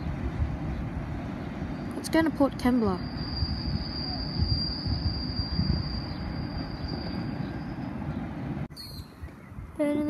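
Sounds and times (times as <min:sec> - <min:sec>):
freight train rumbling: 0:00.0 - 0:08.7
high-pitched wheel squeal: 0:02.7 - 0:07.9.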